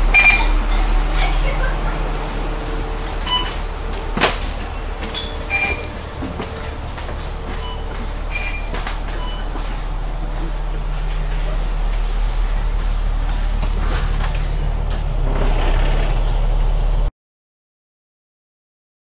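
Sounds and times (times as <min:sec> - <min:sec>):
bus engine hum: 0:00.0 - 0:17.1
short beeps: 0:00.1 - 0:00.5, 0:03.2 - 0:03.6, 0:05.5 - 0:06.0, 0:07.6 - 0:09.6.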